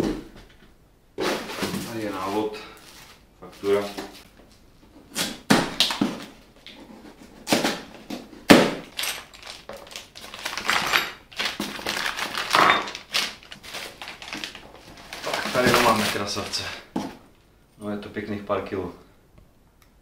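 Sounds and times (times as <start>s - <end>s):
cardboard scrapes and rustles: 13.6s - 16.8s.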